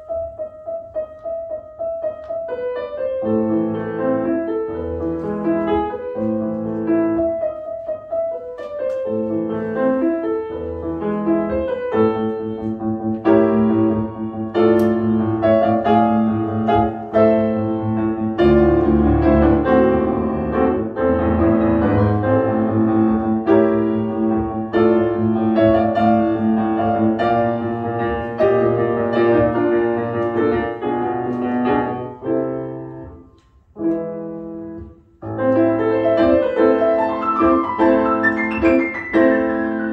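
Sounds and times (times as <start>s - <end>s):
child playing grand piano: 0.0s - 39.9s.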